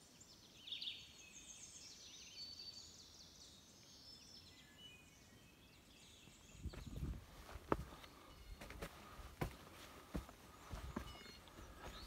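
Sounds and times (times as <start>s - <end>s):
songbirds chirping and trilling: 0.0s - 12.0s.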